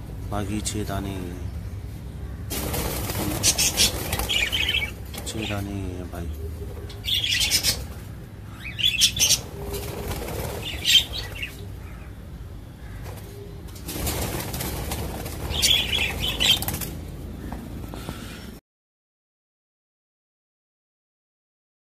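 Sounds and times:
birds flapping wings in cage: 2.5 - 5.8, 9.1 - 11.6, 13.0 - 17.7.

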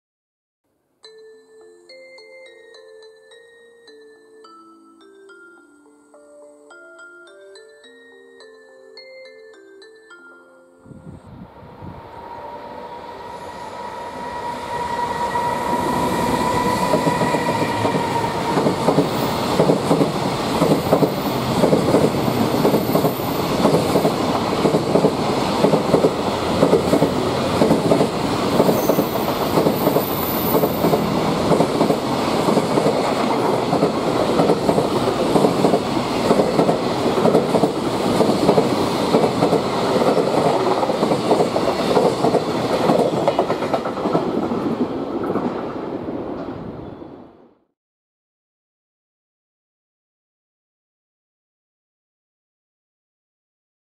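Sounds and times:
high steady locomotive whine: 10.8 - 47.4
train wheels clattering over rails: 16.9 - 45.7.

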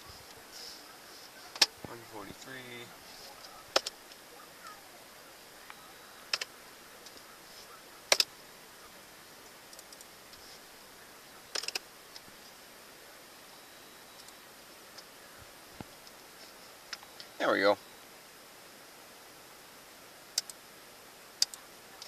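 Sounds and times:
faint steady hiss: 0.0 - 22.0
sharp clicks: 3.7 - 4.2, 5.6 - 7.2, 8.1 - 8.3, 11.5 - 12.3, 20.3 - 20.6, 21.4 - 21.6.

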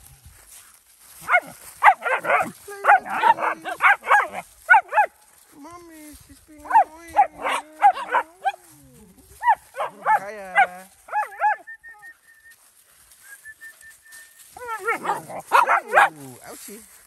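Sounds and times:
puppy yipping and barking: 1.2 - 5.2, 9.4 - 12.0, 14.6 - 16.2.

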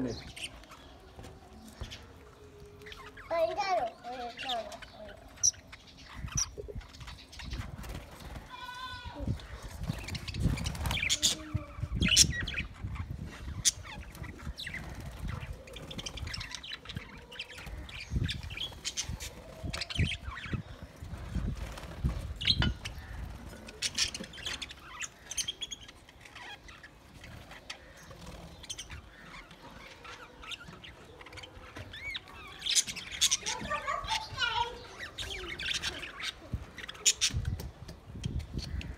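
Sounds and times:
budgerigars chirping: 9.8 - 20.9.

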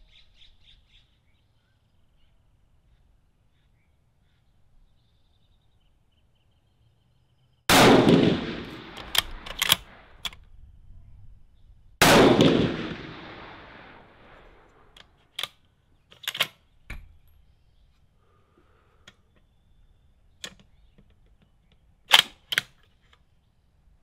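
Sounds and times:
rifle shots echoing: 7.7 - 10.3, 12.0 - 15.0
rifle bolt clicks: 8.6 - 10.4, 15.0 - 17.1, 20.4 - 23.2.

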